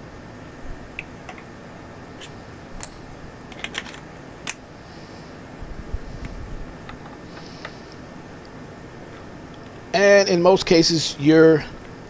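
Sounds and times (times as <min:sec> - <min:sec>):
metallic clink: 0:02.8 - 0:03.6.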